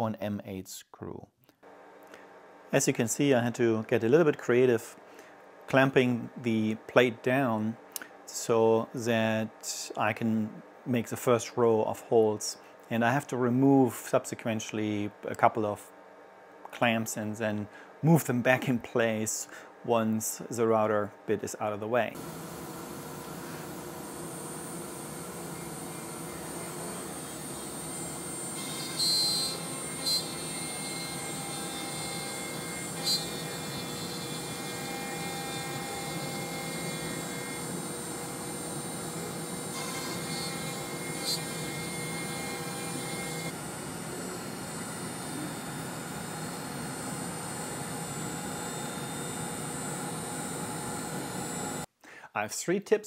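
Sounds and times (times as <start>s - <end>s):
router spindle whining: 22.2s - 51.9s.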